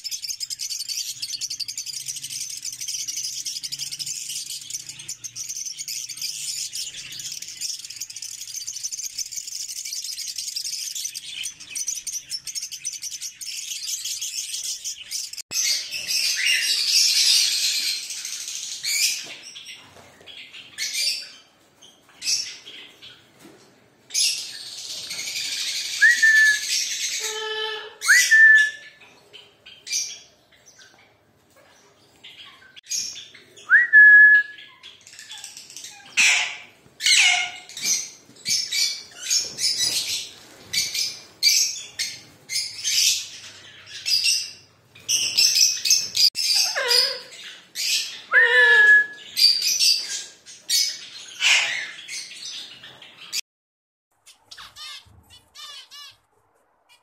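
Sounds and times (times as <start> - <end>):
lovebirds twittering: 0.0 - 23.3, 34.5 - 53.4
parakeets screeching: 35.0 - 52.8.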